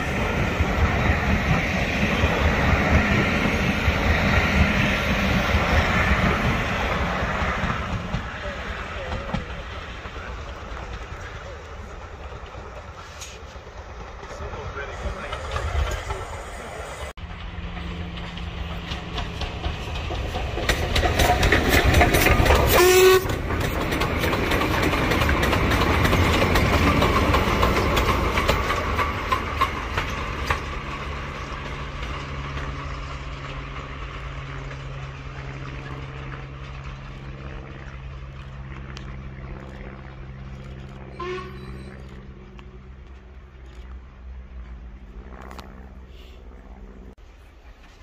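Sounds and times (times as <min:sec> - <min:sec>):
steam train passing: 0:00.0 - 0:48.0
wagons clattering on rails: 0:07.4 - 0:16.4, 0:17.2 - 0:38.9.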